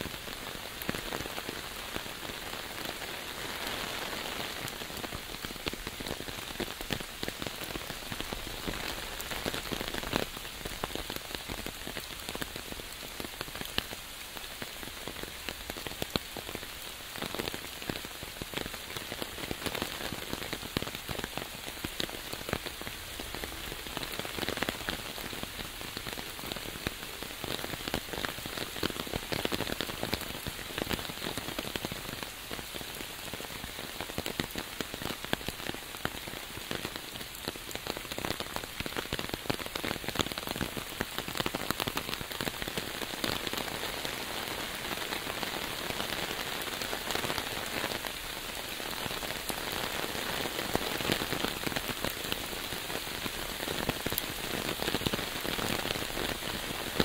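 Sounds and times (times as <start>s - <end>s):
rain drumming on umbrella: 0.0s - 57.0s.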